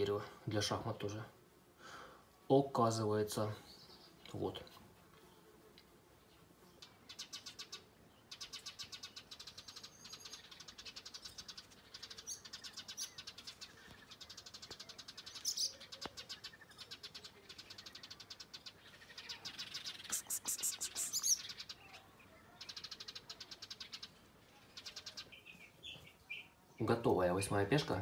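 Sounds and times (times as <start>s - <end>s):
short high chirps: 20.0s - 21.4s.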